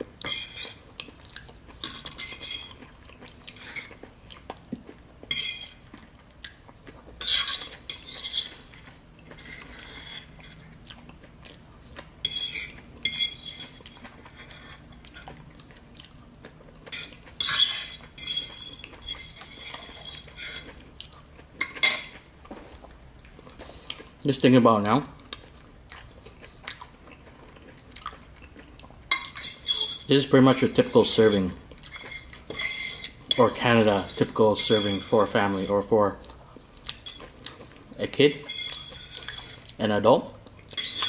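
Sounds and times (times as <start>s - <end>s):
fork scraping a ceramic plate: 0.2s - 0.8s, 1.8s - 2.9s, 5.3s - 5.8s, 7.2s - 10.7s, 12.2s - 15.4s, 16.9s - 20.8s, 29.1s - 35.9s, 37.0s - 37.3s, 38.1s - 39.8s, 40.7s - 41.0s.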